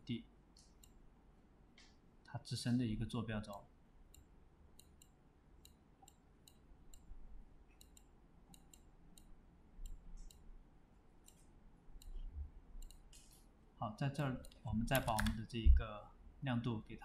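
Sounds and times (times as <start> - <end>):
faint low hum: 0.0 - 17.0
computer mouse clicking: 0.6 - 1.0, 3.5 - 7.1, 7.7 - 10.5, 11.2 - 13.5, 14.4 - 15.4.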